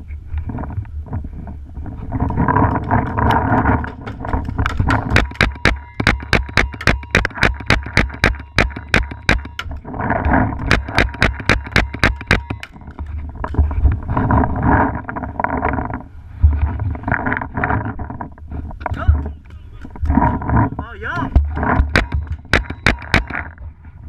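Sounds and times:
heavy rustling: 9.4 - 24.0.

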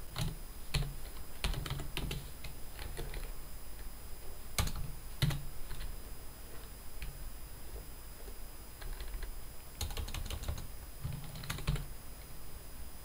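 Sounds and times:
computer keyboard typing: 0.1 - 3.9, 4.6 - 5.9, 8.8 - 11.9.

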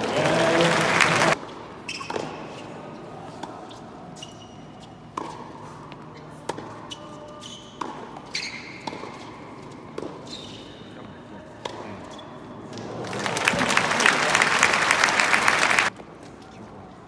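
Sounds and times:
shoe squeaks on court: 1.8 - 3.0, 3.6 - 11.1.

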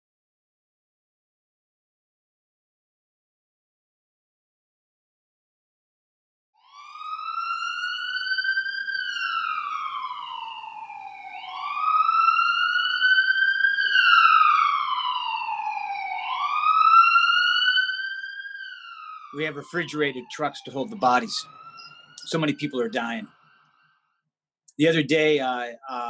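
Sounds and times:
emergency vehicle siren wailing: 6.6 - 23.8.

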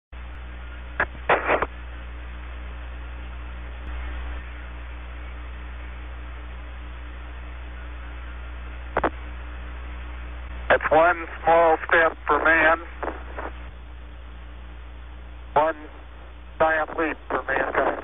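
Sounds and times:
radio channel hum and hiss: 0.2 - 18.0
radio crackling bursts: 0.8 - 2.4, 7.6 - 18.0.

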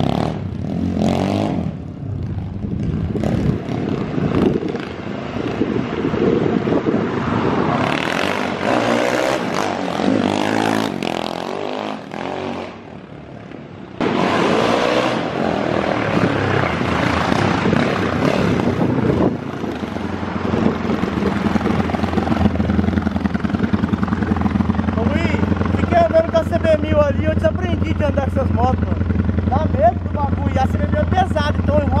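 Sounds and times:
motorcycle engine revving: 0.0 - 13.2, 14.0 - 32.0
motorcycle idling: 18.8 - 32.0.

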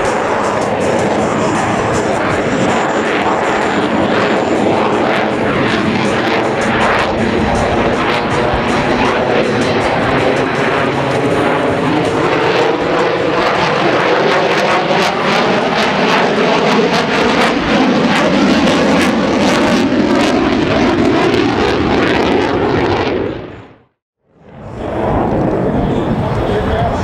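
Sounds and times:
jet flying overhead: 0.0 - 27.0.

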